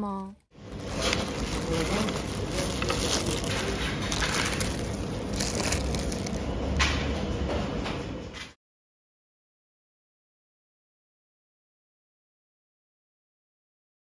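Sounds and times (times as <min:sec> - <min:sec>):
paper wrapper crinkling: 0:00.6 - 0:06.5.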